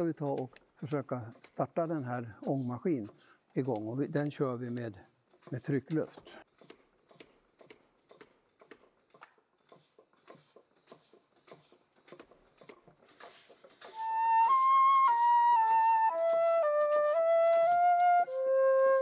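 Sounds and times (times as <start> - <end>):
flute music: 13.9 - 19.0.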